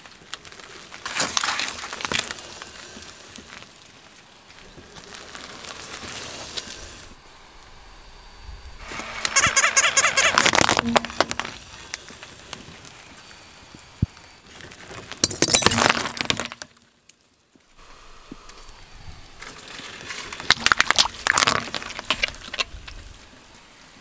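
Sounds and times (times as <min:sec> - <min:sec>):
tyre crushing brittle objects: 0:00.0 - 0:06.9, 0:09.3 - 0:13.2, 0:14.4 - 0:17.2, 0:19.4 - 0:23.1.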